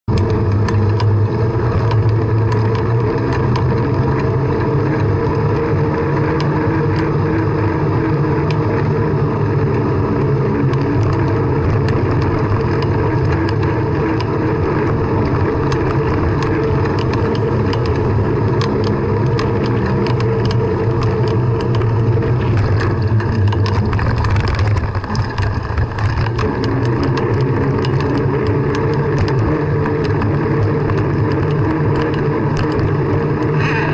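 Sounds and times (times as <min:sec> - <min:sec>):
bike rattles and clicks: 0:00.0 - 0:33.9
wind rush while cycling: 0:00.1 - 0:33.9.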